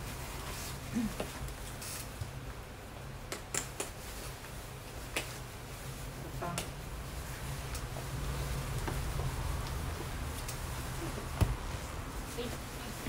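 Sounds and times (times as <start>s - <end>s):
low steady hum: 4.8s - 13.0s.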